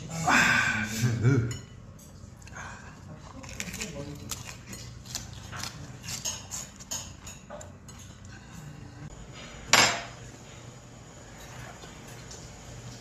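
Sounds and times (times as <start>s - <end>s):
tableware clicking and clinking: 3.5s - 8.8s, 9.7s - 10.2s.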